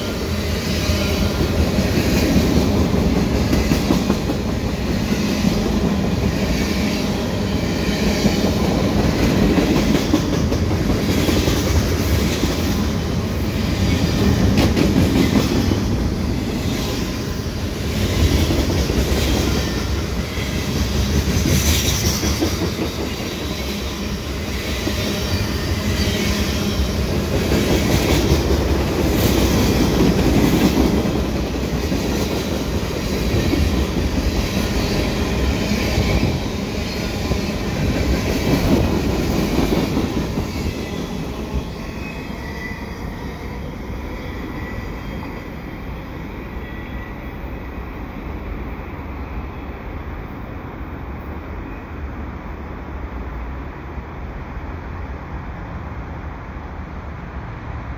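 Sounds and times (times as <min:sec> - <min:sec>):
train rumble: 0:00.0 - 0:49.2.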